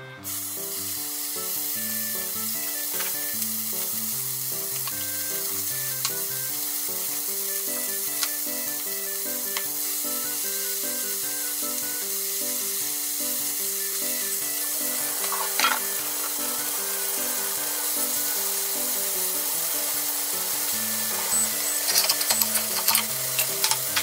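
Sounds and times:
meat sizzling in a frying pan: 0:00.2 - 0:24.0
chopsticks clicking against pan: 0:04.7 - 0:06.3, 0:07.6 - 0:08.4, 0:09.5 - 0:09.8, 0:21.1 - 0:24.0.

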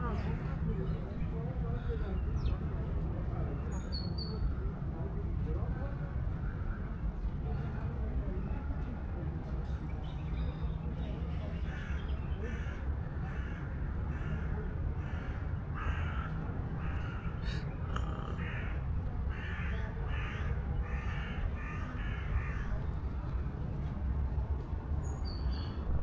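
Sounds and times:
crows cawing: 0:11.7 - 0:22.8
low rumble: 0:25.6 - 0:26.0.

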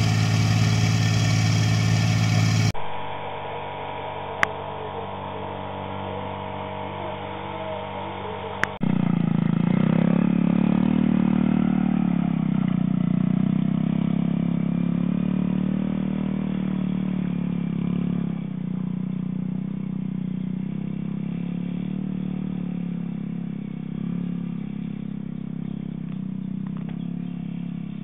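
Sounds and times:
small engine running: 0:00.0 - 0:28.0.

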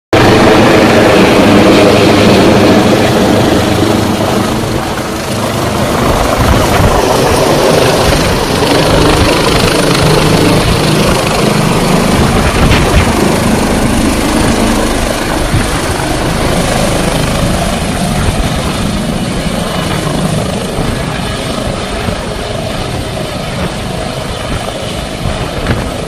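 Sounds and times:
helicopter hovering: 0:00.2 - 0:26.0.

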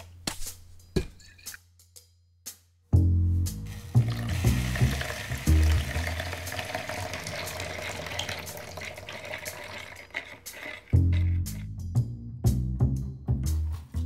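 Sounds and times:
backing music with low beat: 0:00.0 - 0:06.0, 0:11.1 - 0:14.0
liquid stirred in plastic bowl: 0:04.1 - 0:11.6.

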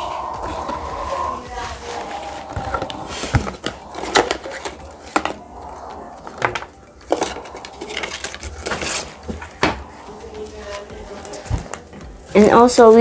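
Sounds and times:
packaging rustling: 0:02.5 - 0:11.9.

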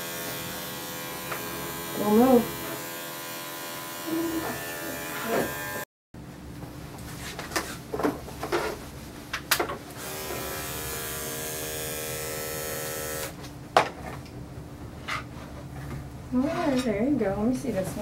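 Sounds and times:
electric clippers buzzing: 0:00.0 - 0:05.9, 0:10.0 - 0:13.4.

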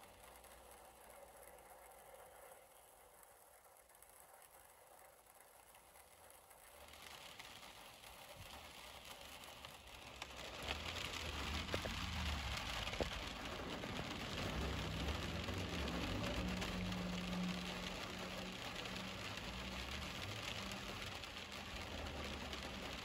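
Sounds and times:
vehicles swishing on wet road: 0:00.0 - 0:02.7, 0:05.6 - 0:23.0
raindrops tapping on window glass: 0:00.0 - 0:23.0
heavy rain hissing: 0:06.5 - 0:23.0.

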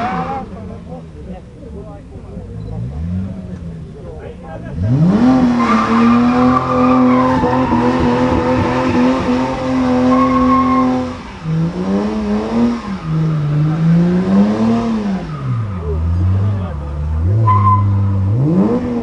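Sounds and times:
tyres spinning and squealing: 0:00.0 - 0:00.7, 0:04.7 - 0:18.9
car engine revving: 0:00.0 - 0:19.0.

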